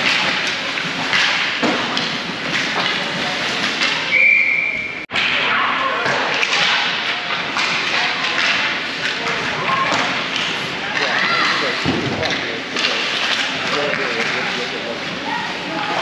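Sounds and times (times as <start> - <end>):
pucks and sticks hitting boards: 0.0 - 4.3, 5.1 - 16.0
voices: 0.0 - 16.0
whistle blast: 4.1 - 5.0.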